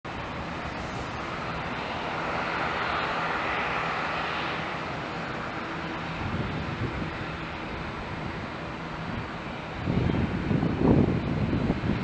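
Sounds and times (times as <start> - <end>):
jet engines rushing: 0.1 - 12.0.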